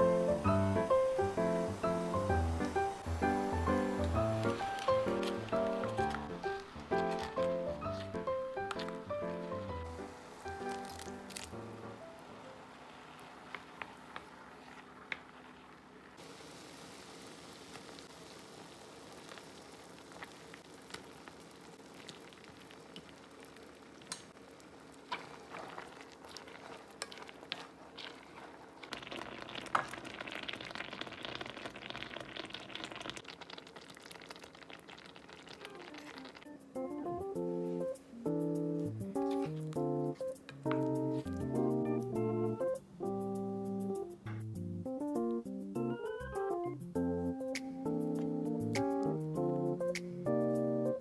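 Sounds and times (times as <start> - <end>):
sauce bubbling and sizzling in pan: 0.0 - 11.8, 12.6 - 37.0
chopsticks clicking against pan: 24.1 - 24.3.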